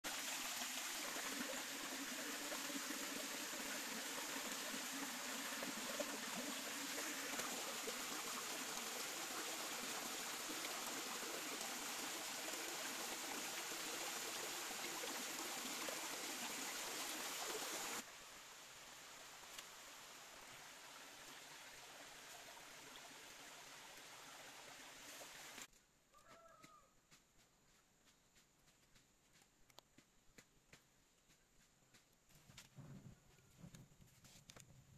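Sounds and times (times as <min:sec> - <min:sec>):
stream running over rocks: 0:00.0 - 0:25.7.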